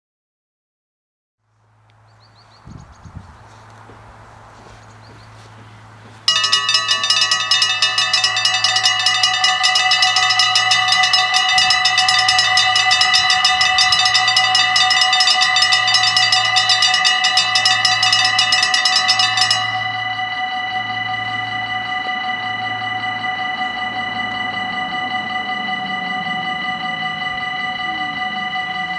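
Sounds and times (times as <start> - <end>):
level crossing warning bells: 6.2 - 28.9.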